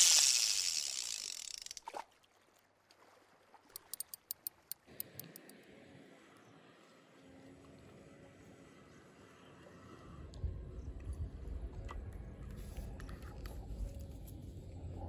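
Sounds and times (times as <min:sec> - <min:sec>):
sharp clicks: 0:00.0 - 0:01.8, 0:03.8 - 0:05.5.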